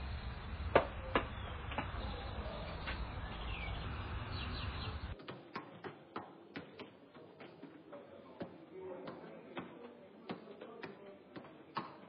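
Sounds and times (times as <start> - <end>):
birds chirping: 0.0 - 5.2
low rumble: 0.0 - 5.2.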